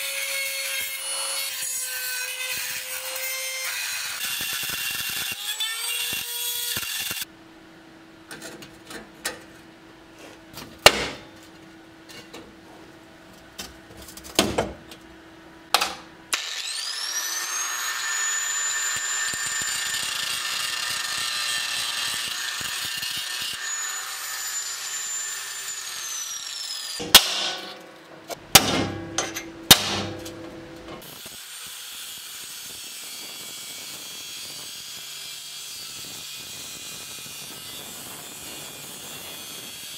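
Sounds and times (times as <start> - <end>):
angle grinder grinding metal: 16.3 - 27.8
sharp knocks: 28.4 - 31.0.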